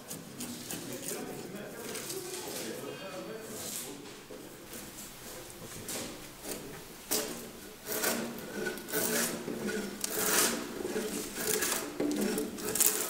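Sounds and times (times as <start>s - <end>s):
chisel paring wood: 6.4s - 13.0s
drawknife scraping a log: 6.4s - 13.0s.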